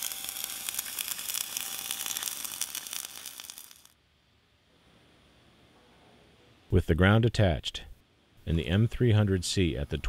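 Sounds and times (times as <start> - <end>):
welding arc crackling sizzle: 0.0 - 4.0.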